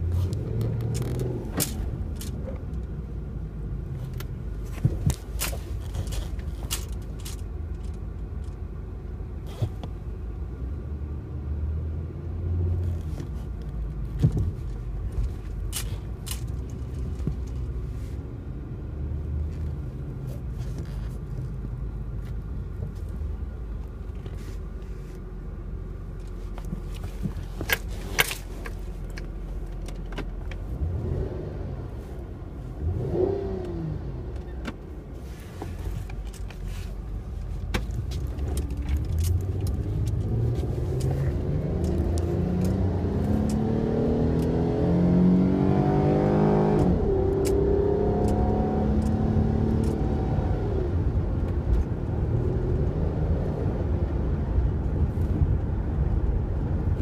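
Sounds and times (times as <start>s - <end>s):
car engine and road rumble: 0.0s - 57.0s
sharp clicks and rattles: 4.0s - 8.7s, 12.9s - 17.8s, 35.6s - 43.7s.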